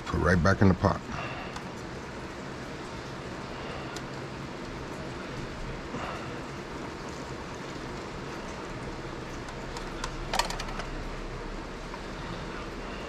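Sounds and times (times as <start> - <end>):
fan hissing and humming: 0.0 - 13.0.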